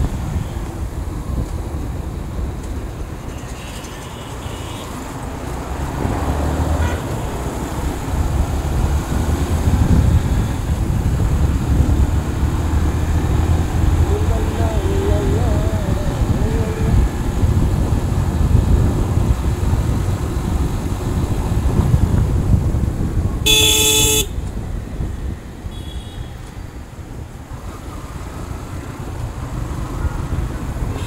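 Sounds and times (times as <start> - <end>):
motorcycle road rumble: 0.0 - 31.0
wind noise: 0.0 - 31.0
vehicle horn blast: 6.7 - 7.2, 23.4 - 24.4, 25.7 - 26.4.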